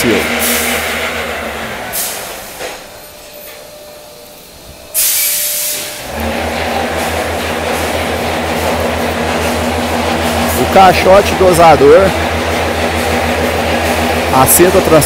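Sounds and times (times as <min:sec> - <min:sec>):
loud hiss: 0:00.0 - 0:02.9, 0:04.6 - 0:15.0
machinery droning and pulsing: 0:00.0 - 0:15.0.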